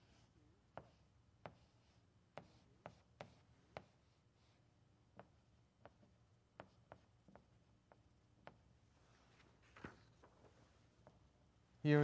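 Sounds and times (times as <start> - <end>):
chalk tapping on chalkboard: 0.7 - 4.0, 5.1 - 8.6.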